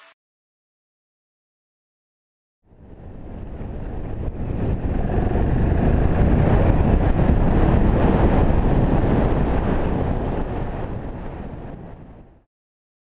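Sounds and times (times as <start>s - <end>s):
wind rush on microphone: 2.7s - 12.5s.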